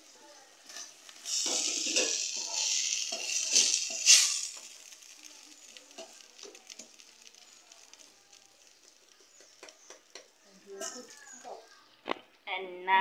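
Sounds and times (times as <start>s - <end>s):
meat sizzling in a pot: 0.0s - 11.8s
wooden spoon scraping a pot: 0.6s - 5.0s.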